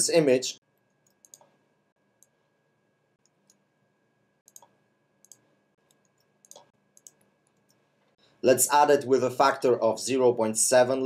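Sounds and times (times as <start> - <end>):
mouse and keyboard clicks: 1.0 - 1.5, 4.5 - 7.8.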